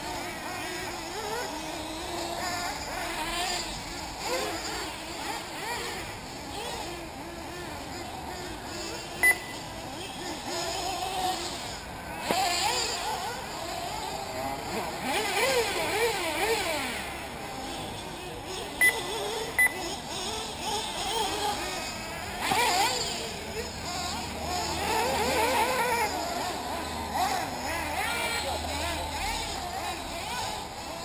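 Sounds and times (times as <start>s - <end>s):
model car engines whining: 0.0s - 31.0s
sharp high beeps: 9.2s - 9.6s, 19.6s - 19.8s.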